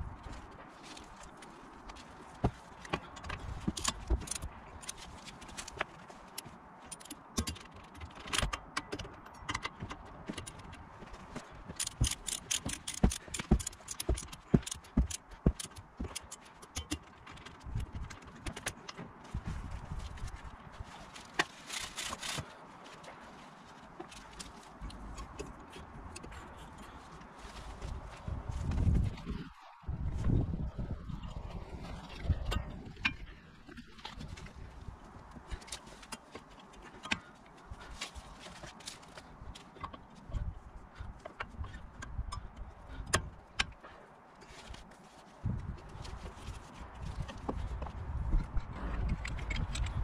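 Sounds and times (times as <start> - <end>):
ratchet wrench clicking: 11.8 - 16.9.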